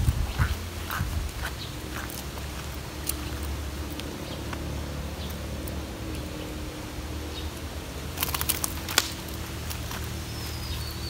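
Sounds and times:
wind buffeting microphone: 0.0s - 4.5s.

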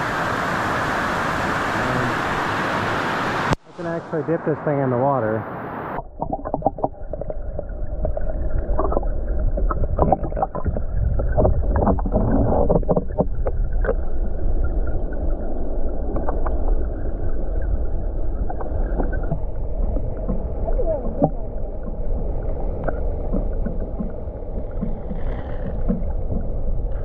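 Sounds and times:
underwater water rushing: 0.0s - 27.0s
small underwater clicks and pops: 6.1s - 14.1s, 16.1s - 16.6s, 22.8s - 27.0s.

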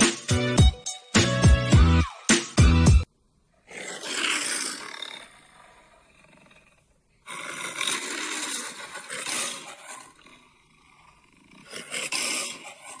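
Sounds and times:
lion roaring: 3.7s - 13.0s.

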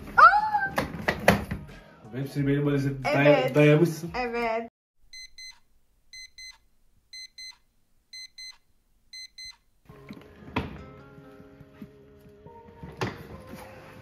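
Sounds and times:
alarm clock beeping: 5.1s - 9.6s.

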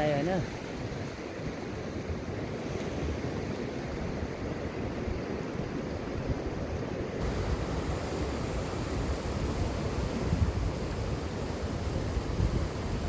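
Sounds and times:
wind buffeting microphone: 0.0s - 13.0s
mountain river rushing: 3.3s - 13.0s.

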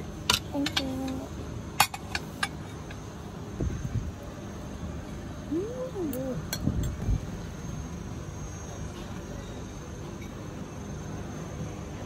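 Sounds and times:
faint high steady tone: 7.4s - 12.0s.

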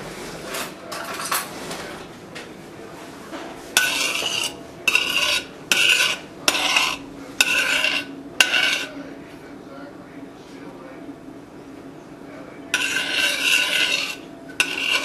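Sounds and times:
metal spoon scraping saucepan: 3.7s - 9.0s, 12.7s - 15.0s.

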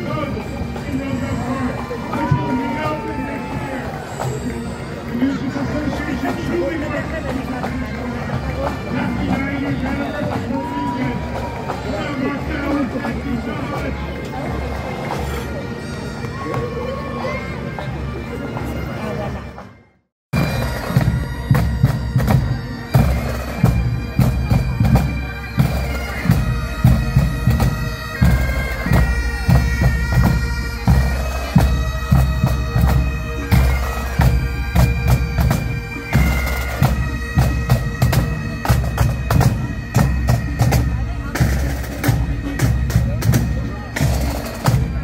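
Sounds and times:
bagpipes playing a tune: 0.0s - 19.8s, 20.4s - 45.0s
marching snare and bass drums: 20.4s - 45.0s.

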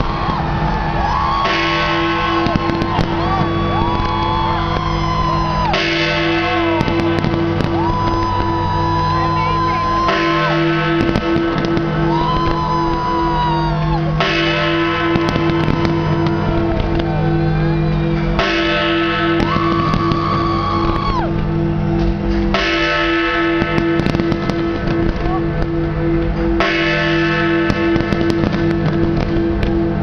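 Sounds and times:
firework cracks: 0.0s - 17.2s, 18.4s - 25.7s, 27.6s - 30.0s
crowd shouting: 0.0s - 22.0s.

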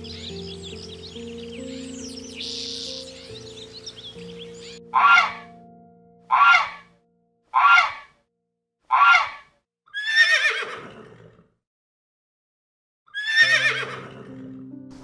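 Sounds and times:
goose honks: 4.9s - 5.5s, 6.3s - 6.9s
horse whinnying: 5.0s - 5.5s, 6.3s - 6.9s, 7.6s - 8.1s, 8.9s - 11.4s, 13.1s - 14.5s.

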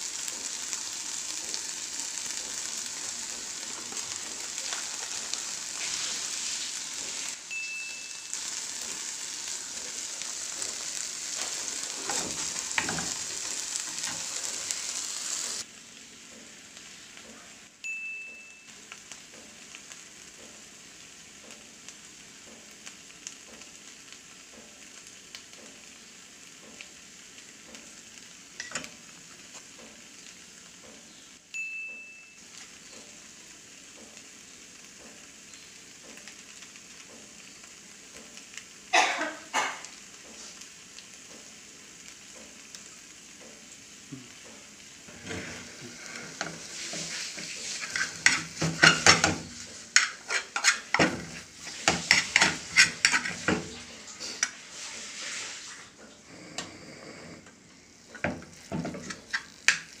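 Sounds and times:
food sizzling in a frying pan: 0.0s - 60.0s
metal utensil scraping pan: 46.3s - 55.6s, 58.2s - 60.0s.

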